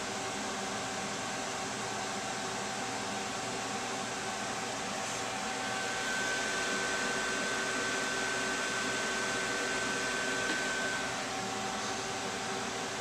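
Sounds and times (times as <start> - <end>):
computer cooling fans whooshing: 0.0 - 13.0.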